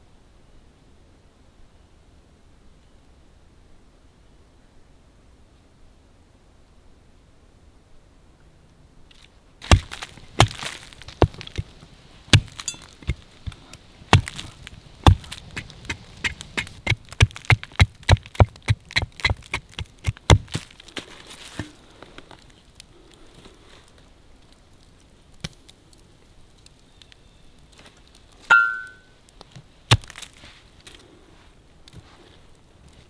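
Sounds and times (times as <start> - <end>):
hatchet chopping: 9.6 - 11.7, 12.3 - 20.6, 29.9 - 30.2.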